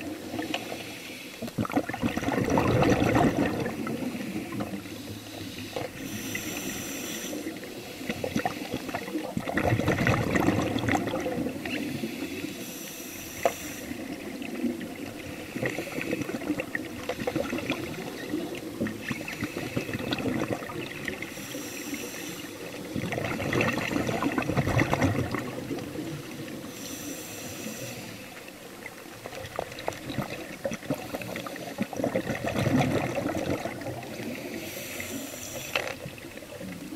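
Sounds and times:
exhaled bubbles gurgling: 0:00.0 - 0:12.6, 0:13.3 - 0:36.9
underwater water noise: 0:00.0 - 0:36.9
scuba regulator hiss: 0:04.1 - 0:08.8, 0:11.8 - 0:14.2, 0:21.3 - 0:22.8, 0:26.6 - 0:28.4, 0:34.2 - 0:35.9.

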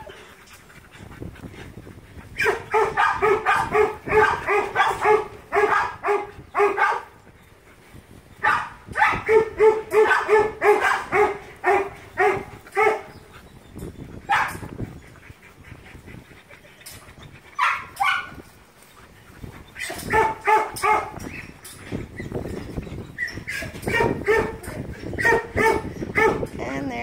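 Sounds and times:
young dog barking: 0:02.4 - 0:07.1, 0:08.4 - 0:13.2, 0:14.3 - 0:14.7, 0:17.6 - 0:18.4, 0:19.8 - 0:21.4, 0:23.2 - 0:26.5.

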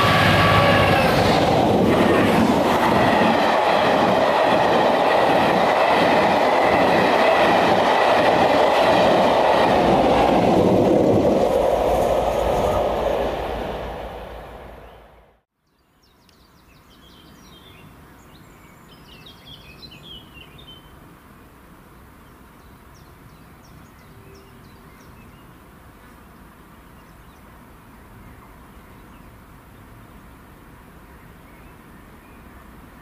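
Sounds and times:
songbirds chirping: 0:14.7 - 0:21.0, 0:21.8 - 0:33.0.

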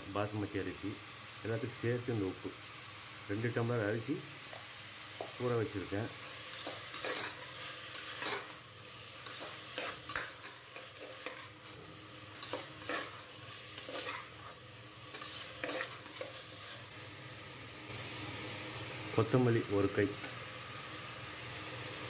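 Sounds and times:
vegetables sizzling in oil: 0:00.0 - 0:22.0.

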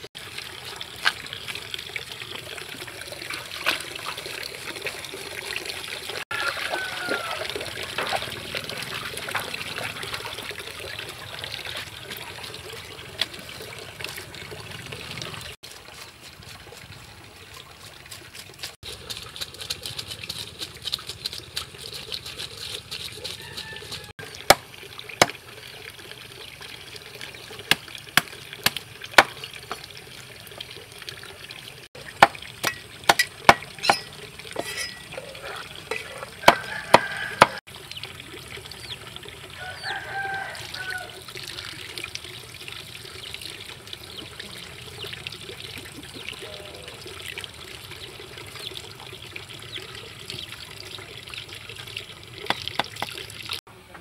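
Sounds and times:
running water trickle: 0:00.0 - 0:54.0
cleaver chopping on wooden block: 0:27.7 - 0:29.4, 0:36.5 - 0:37.6.

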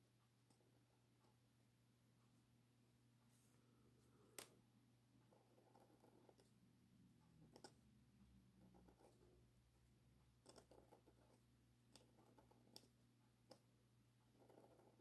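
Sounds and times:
pen nib scratching on paper: 0:05.2 - 0:06.6, 0:08.5 - 0:09.4, 0:10.4 - 0:13.6, 0:14.2 - 0:15.0
pen clicks: 0:07.5 - 0:07.8, 0:10.4 - 0:12.9.

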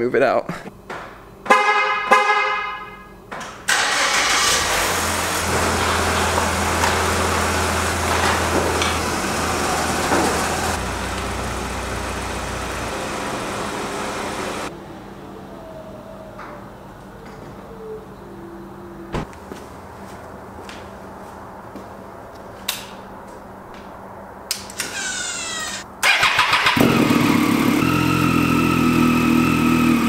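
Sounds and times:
garage door opener running: 0:03.4 - 0:14.7, 0:24.7 - 0:30.0
car engine running: 0:04.2 - 0:14.7.

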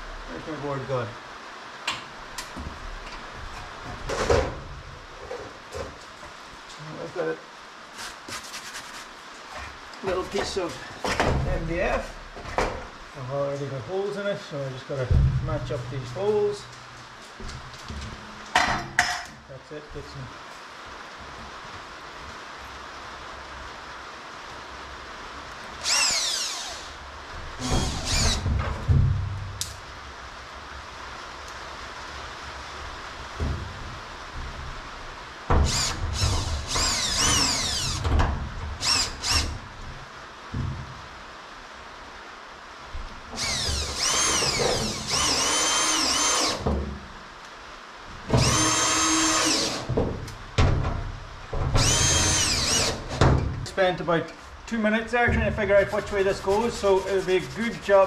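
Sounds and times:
cordless drill running: 0:25.8 - 0:27.0, 0:27.6 - 0:28.4, 0:35.6 - 0:38.1, 0:38.8 - 0:39.6, 0:43.4 - 0:46.6, 0:48.4 - 0:49.9, 0:51.8 - 0:53.0.

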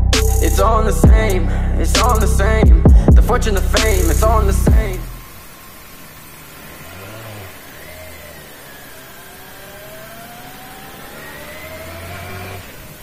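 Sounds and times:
motorcycle engine pulling away: 0:03.6 - 0:13.0.

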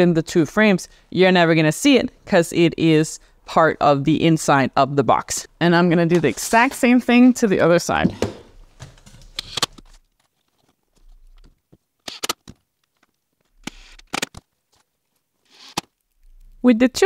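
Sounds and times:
wooden planks knocking: 0:08.0 - 0:09.2.

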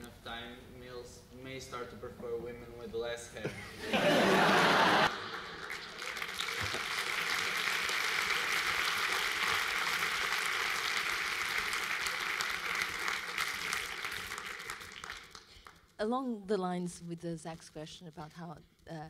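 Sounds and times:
audience applauding: 0:04.0 - 0:15.8.

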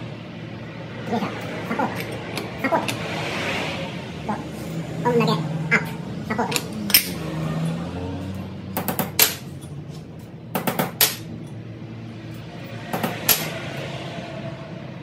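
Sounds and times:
metallic knocks and clanks: 0:12.9 - 0:13.6.

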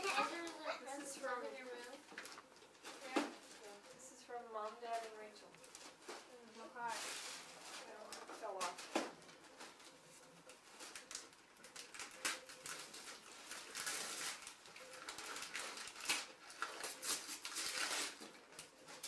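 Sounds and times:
wrapping paper crinkling and tearing: 0:04.7 - 0:19.0.

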